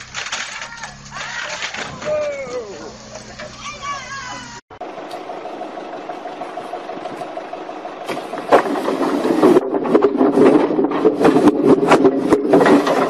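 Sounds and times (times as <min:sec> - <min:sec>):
logs crashing and clattering: 0:00.0 - 0:03.6, 0:08.0 - 0:13.0
forklift engine running: 0:00.0 - 0:13.0.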